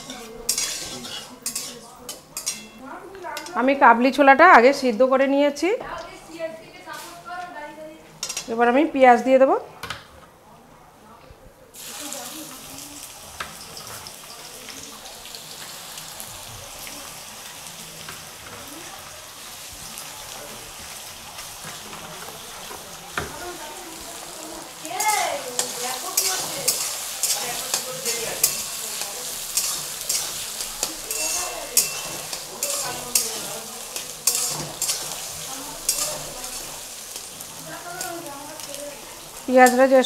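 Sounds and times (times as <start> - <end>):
spatula scraping metal pan: 0.0 - 2.8, 25.0 - 37.4
onions sizzling in hot oil: 0.0 - 9.0, 11.7 - 40.0.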